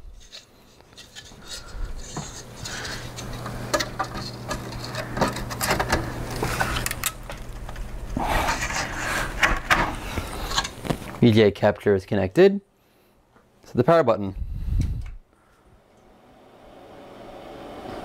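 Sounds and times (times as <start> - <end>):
cables plugging into metal case: 2.1 - 8.1.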